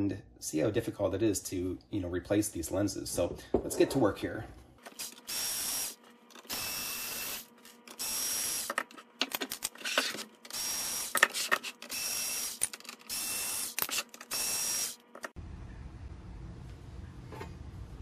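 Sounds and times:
electric screwdriver whining: 4.9s - 8.9s, 9.9s - 15.4s.

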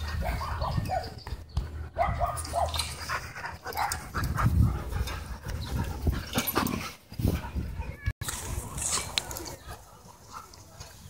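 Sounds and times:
dogs panting: 0.0s - 8.0s.

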